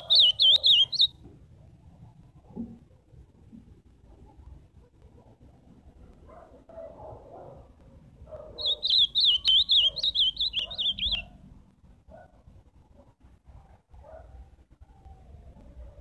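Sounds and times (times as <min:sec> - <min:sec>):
bird singing warbling song: 0:00.0 - 0:01.2, 0:08.4 - 0:11.4.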